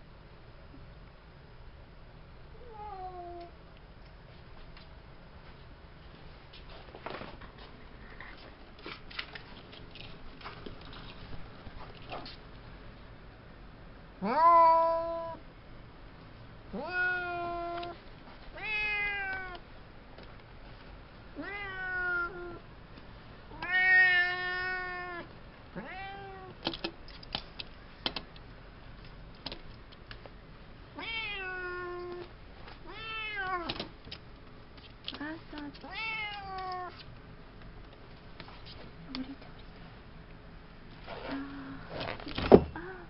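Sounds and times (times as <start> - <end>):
cat meowing: 14.2 - 15.4, 16.8 - 18.0, 18.6 - 19.6, 21.4 - 22.6, 23.5 - 26.6, 31.0 - 32.2, 32.9 - 33.7, 35.9 - 37.0.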